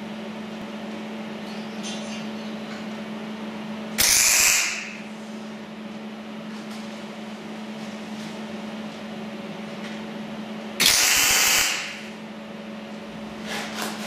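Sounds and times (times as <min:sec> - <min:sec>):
steady low hum: 0:00.0 - 0:14.0
arc welder crackling hiss: 0:04.0 - 0:05.0, 0:10.8 - 0:12.1.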